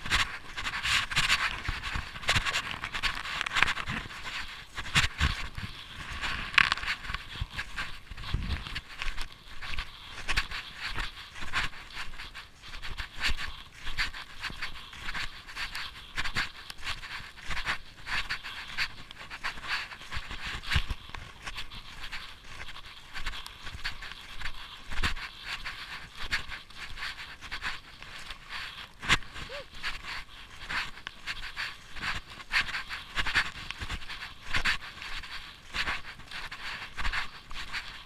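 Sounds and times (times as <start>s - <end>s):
person panting: 29.2s - 30.1s.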